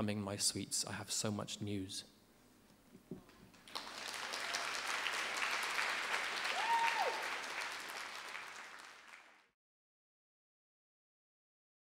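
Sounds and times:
audience applauding: 3.5s - 9.6s.

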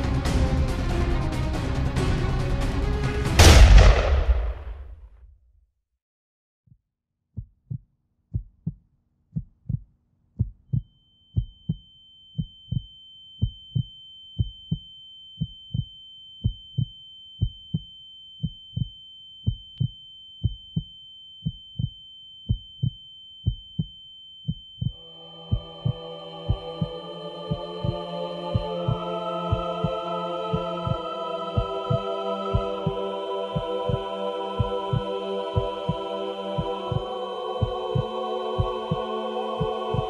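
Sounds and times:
heartbeat thumps: 7.4s - 8.8s, 9.4s - 11.8s, 12.4s - 14.8s, 15.4s - 23.9s, 24.5s - 31.0s, 31.6s - 33.0s, 33.6s - 36.0s, 36.6s - 40.0s
high-pitched ringing tone: 10.9s - 26.6s.

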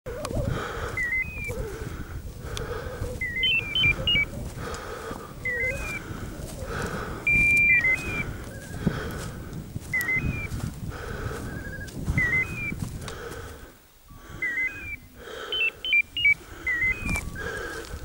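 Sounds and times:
wind noise on microphone: 0.1s - 18.0s
electronic beeper chirps: 1.0s - 1.5s, 3.2s - 4.3s, 5.5s - 6.0s, 7.3s - 8.2s, 10.0s - 10.5s, 11.6s - 12.8s, 14.4s - 17.2s.

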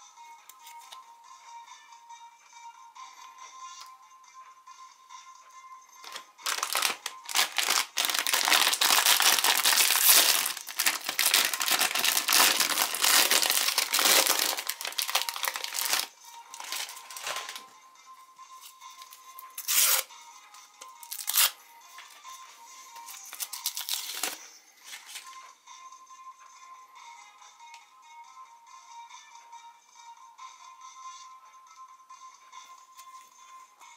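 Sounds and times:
faint background music: 0.0s - 33.9s
paper sleeve crinkling: 6.0s - 17.6s
plastic wrapper crinkling and tearing: 6.0s - 17.6s, 19.6s - 20.0s, 21.0s - 21.6s, 23.1s - 24.4s.

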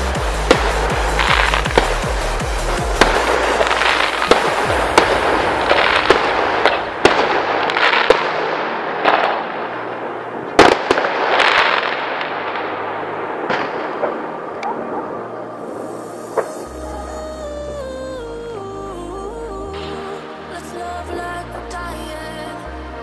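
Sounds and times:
crackling of fireworks sparks: 0.0s - 14.7s.

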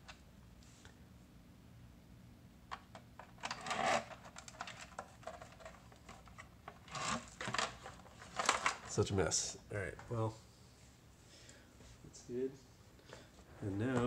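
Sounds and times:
plastic rustling: 3.4s - 9.1s.

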